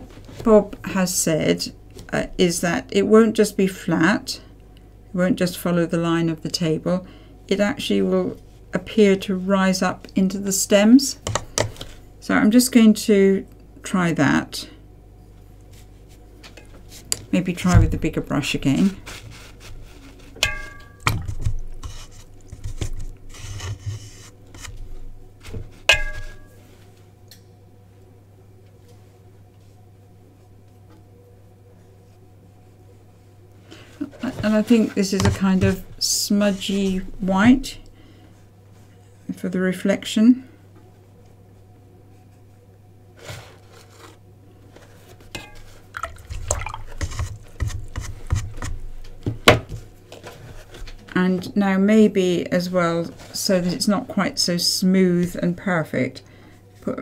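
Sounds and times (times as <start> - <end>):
brush knocking against pot: 20.3 - 23.0, 25.8 - 26.6.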